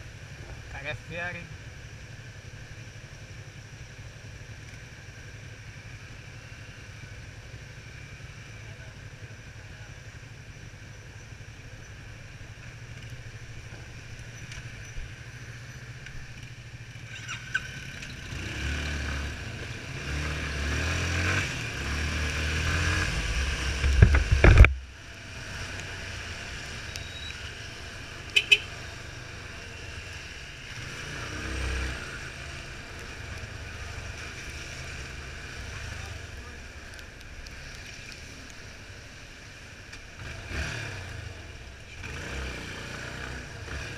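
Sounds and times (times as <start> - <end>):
motorcycle engine: 6.2 - 43.9
wind rumble: 21.2 - 24.9.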